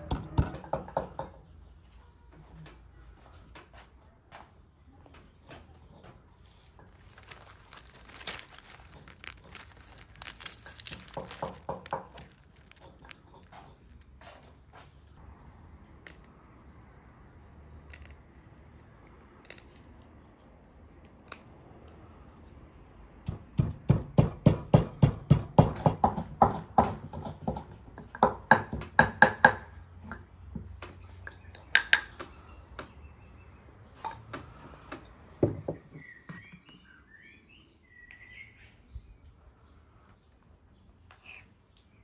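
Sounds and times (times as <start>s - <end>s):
pestle pounding in wooden mortar: 23.3s - 29.6s.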